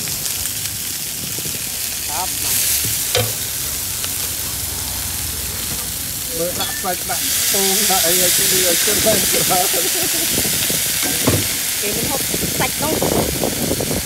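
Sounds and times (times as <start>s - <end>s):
noodles sizzling in a wok: 0.0s - 14.0s
metal spatula clacking on pan: 3.1s - 3.5s.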